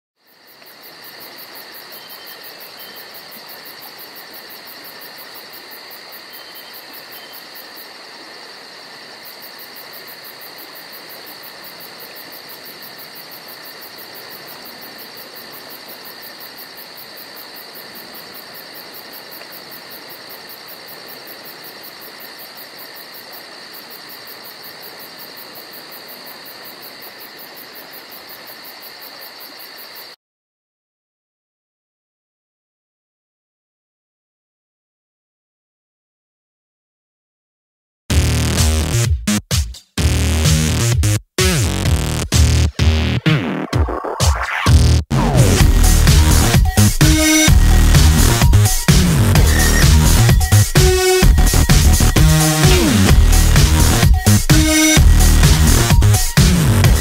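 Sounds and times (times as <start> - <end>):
insect chorus pulsing: 0.2 - 30.2, 45.2 - 57.0.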